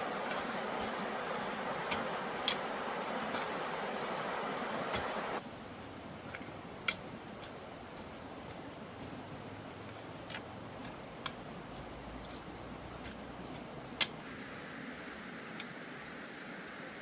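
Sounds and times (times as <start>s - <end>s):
steady background hiss: 0.0s - 17.0s.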